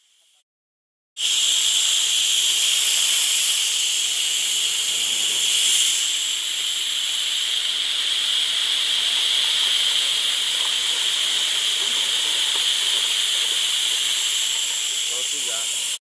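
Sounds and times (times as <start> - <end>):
compressed air hissing: 1.2 - 16.0.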